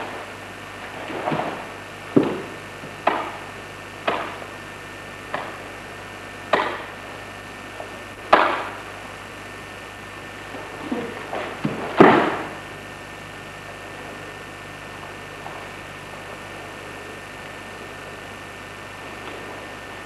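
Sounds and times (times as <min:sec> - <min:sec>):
sharp cracks of karate strikes: 0:04.0 - 0:04.4, 0:06.5 - 0:07.0, 0:08.3 - 0:08.8.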